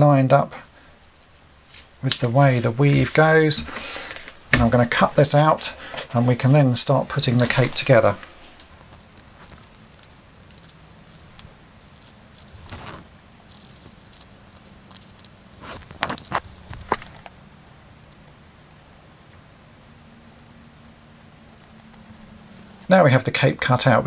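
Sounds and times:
cloth rustling: 1.1 - 10.0, 11.0 - 13.1.

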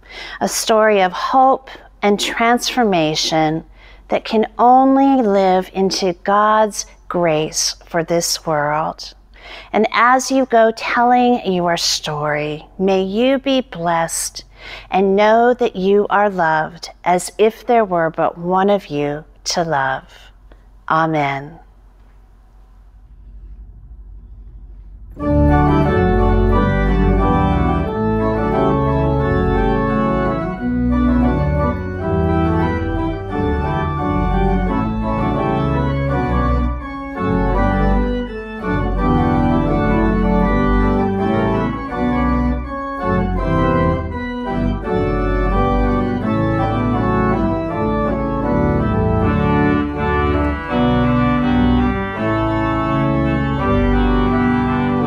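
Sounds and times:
church organ chords: 24.9 - 55.0.

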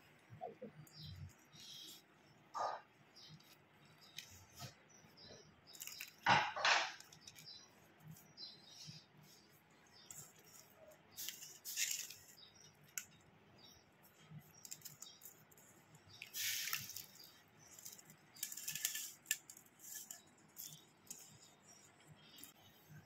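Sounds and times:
newspaper rustling and crinkling: 5.7 - 8.3, 10.1 - 13.1, 14.6 - 21.5.

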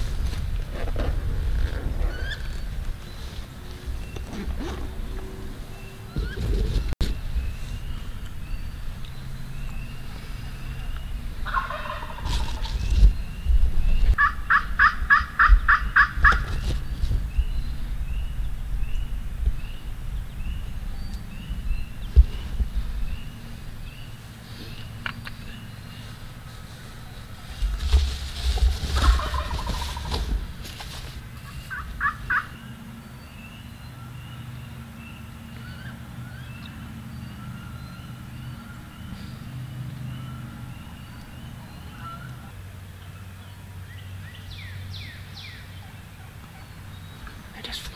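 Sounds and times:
steady low hum: 0.0 - 47.9
songbird chirping faintly: 1.6 - 14.5
turkey yelping: 11.4 - 12.5, 14.2 - 16.4, 29.0 - 30.1, 31.6 - 32.6, 41.8 - 42.5.

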